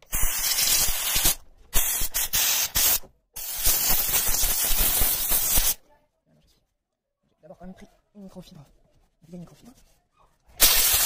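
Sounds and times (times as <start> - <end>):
steam jet hissing: 0.1 - 5.8, 10.6 - 11.0.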